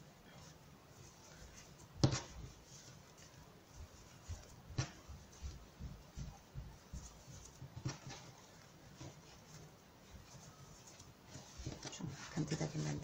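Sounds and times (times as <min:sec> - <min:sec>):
hands rustling and tapping yarn: 0:00.0 - 0:13.0.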